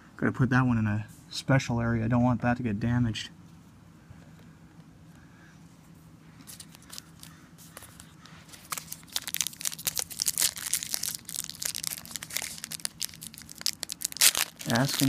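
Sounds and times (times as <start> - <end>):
foil wrapper crinkling and tearing: 6.5 - 15.0.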